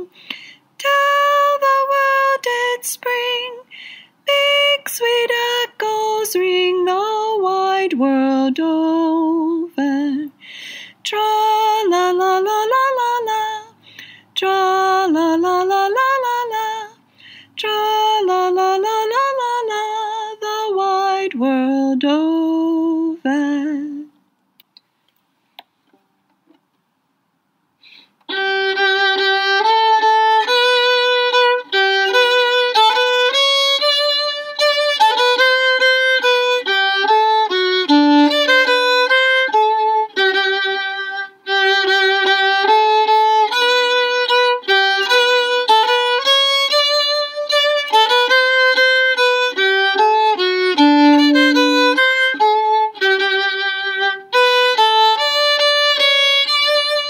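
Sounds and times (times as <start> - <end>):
solo violin melody: 28.3 - 57.0.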